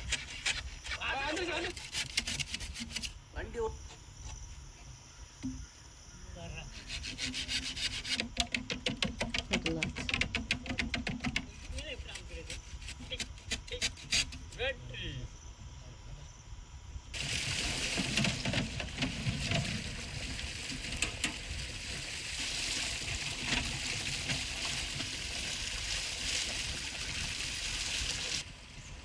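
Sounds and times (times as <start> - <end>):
water splashing over bamboo: 17.2 - 28.5
water gushing from a pipe: 17.2 - 28.6.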